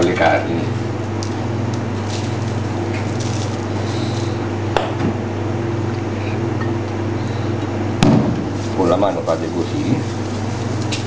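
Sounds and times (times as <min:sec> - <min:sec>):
low machine hum: 0:00.0 - 0:11.0
seasoning rustling: 0:01.1 - 0:04.4, 0:08.5 - 0:11.0.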